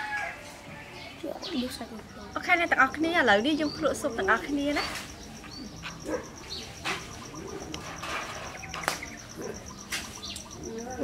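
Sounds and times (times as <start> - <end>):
birdsong: 0.0 - 11.0
dove cooing: 4.8 - 11.0.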